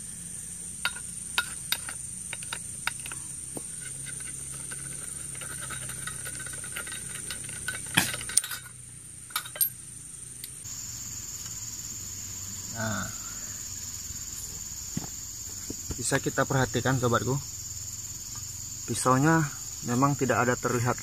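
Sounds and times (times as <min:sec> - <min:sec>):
insects droning: 0:00.0 - 0:21.0
metal clanks: 0:00.8 - 0:09.8
metal tools clicking and knocking: 0:00.8 - 0:09.8.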